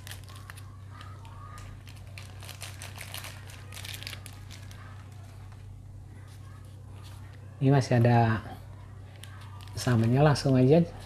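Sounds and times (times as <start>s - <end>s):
plastic packaging crinkling: 0.0s - 5.6s, 9.1s - 10.4s.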